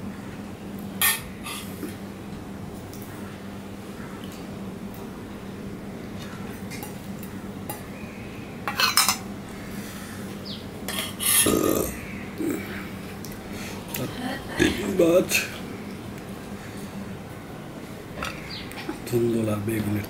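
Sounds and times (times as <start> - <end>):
steel bowls clinking: 8.7 - 9.2.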